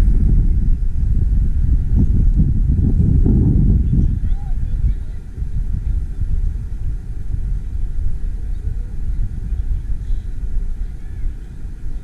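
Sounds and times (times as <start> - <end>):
loud low rumble: 0.0 - 12.0.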